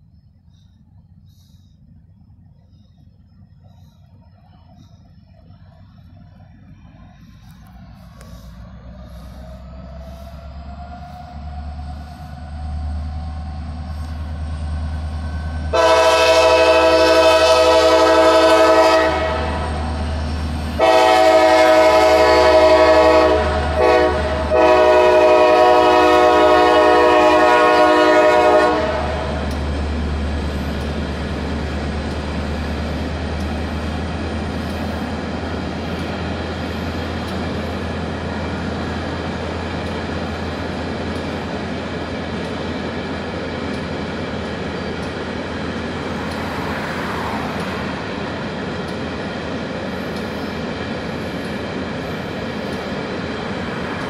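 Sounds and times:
freight train rumbling past: 0.0s - 54.0s
locomotive horn blasts: 15.7s - 19.9s, 20.6s - 29.6s.

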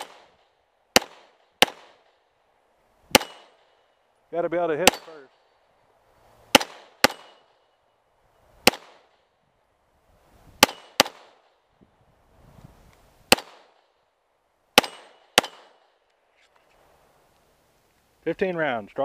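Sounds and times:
pistol shots: 0.0s - 2.2s, 3.1s - 3.8s, 4.8s - 5.3s, 6.5s - 7.6s, 8.6s - 9.3s, 10.6s - 11.6s, 13.3s - 13.9s, 14.8s - 16.0s.

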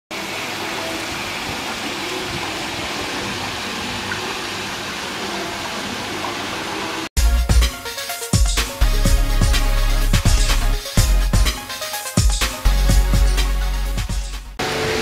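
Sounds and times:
water pouring into pond: 0.2s - 7.1s.

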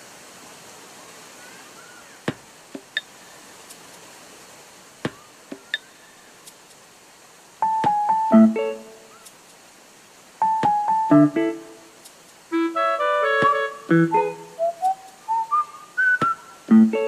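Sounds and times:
faint hiss: 0.0s - 17.0s
electric piano game music: 7.6s - 9.1s, 10.4s - 11.9s, 12.5s - 15.6s, 16.6s - 17.0s.

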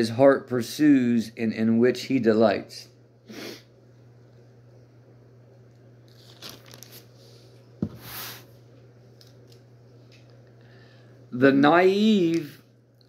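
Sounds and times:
short breathy hiss: 3.3s - 3.7s, 8.0s - 8.5s
rustling and crinkles: 5.7s - 8.2s.

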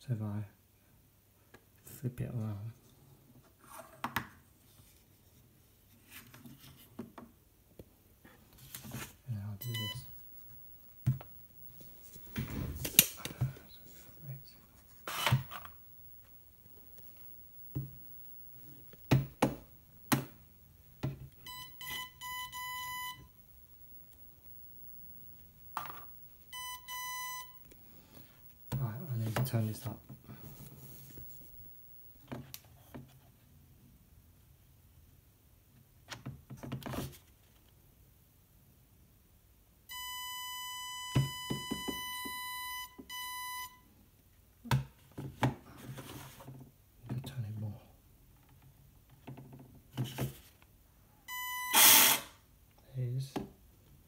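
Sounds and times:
electronic beep: 9.6s - 10.2s, 18.6s - 23.3s, 25.4s - 27.8s
electronic buzzer beeps: 9.6s - 14.4s, 15.0s - 29.3s, 39.9s - 43.8s, 51.3s - 52.3s
remote control clicks and knocks: 15.2s - 22.4s.

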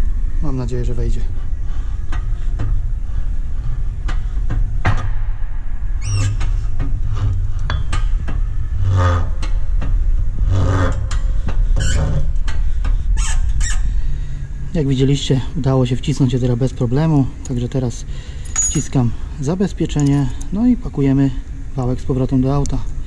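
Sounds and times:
shop press low rumble: 0.0s - 23.0s
short squeaks and clicks: 6.0s - 6.6s, 11.8s - 12.2s, 13.2s - 13.8s.

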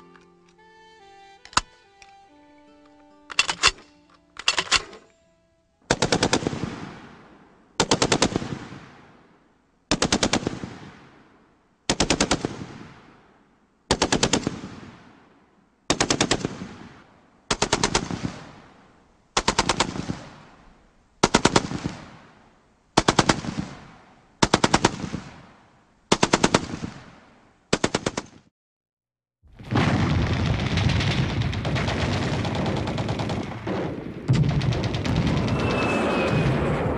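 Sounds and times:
machine gun bursts echoing: 5.9s - 7.0s, 17.5s - 18.4s, 30.8s - 36.3s.

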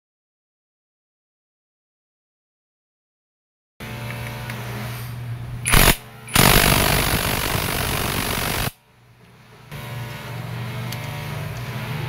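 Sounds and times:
impact wrench running: 5.7s - 8.7s.

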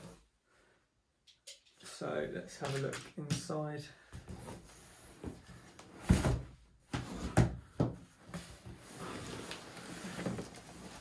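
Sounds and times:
packaging scraping and rustling: 8.4s - 11.0s.

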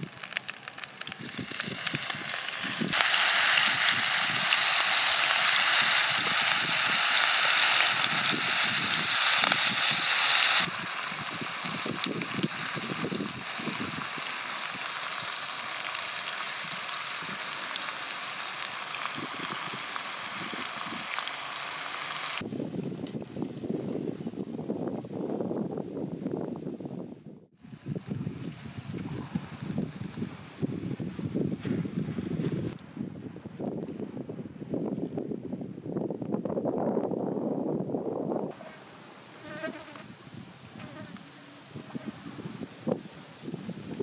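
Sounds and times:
low rumble of wind: 0.0s - 17.7s, 22.4s - 44.0s
fish sizzling in hot oil: 0.0s - 22.4s
oil bubbling: 0.0s - 22.4s.

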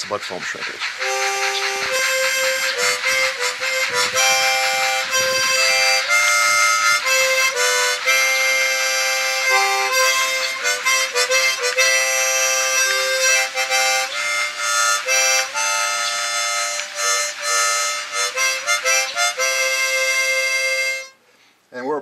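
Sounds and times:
melody of held notes: 1.0s - 21.2s.

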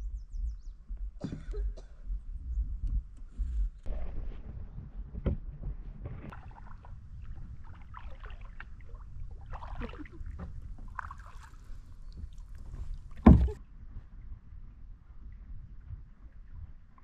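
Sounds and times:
paddles splashing in water: 6.2s - 13.6s
water drips: 6.3s - 13.6s
small knocks: 13.1s - 13.6s
loud thump: 13.2s - 13.6s.

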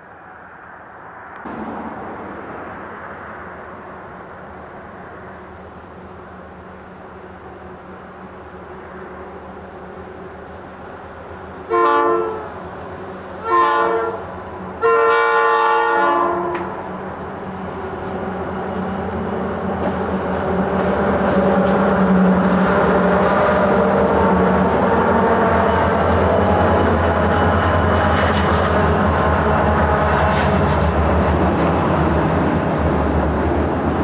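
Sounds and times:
diesel locomotive engines passing: 0.0s - 34.0s
locomotive horn blasts: 11.7s - 12.6s, 13.4s - 16.8s.

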